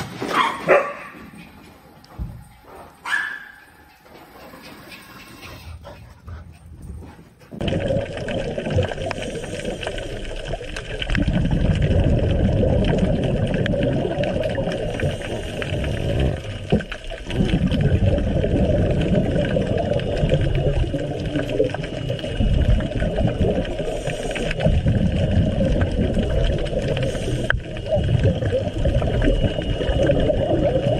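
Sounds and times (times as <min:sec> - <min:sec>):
muffled underwater water rushing: 0:07.6 - 0:30.9.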